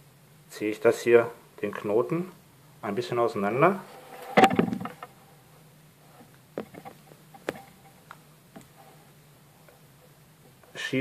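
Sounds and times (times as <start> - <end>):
faint clicks and taps: 6.2 - 8.8.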